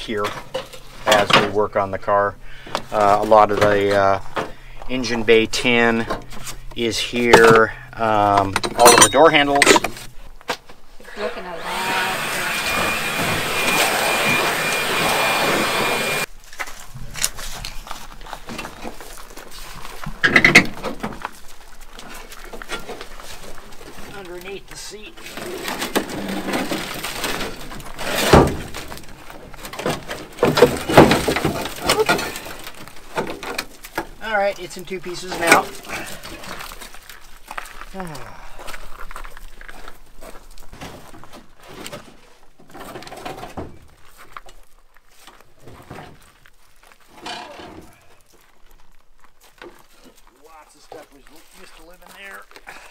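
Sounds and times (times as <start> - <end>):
rustling and clicks of car parts: 0.0 - 11.1, 16.2 - 37.9, 38.6 - 52.9
loud squealing scrape: 11.6 - 16.3, 25.3 - 28.6.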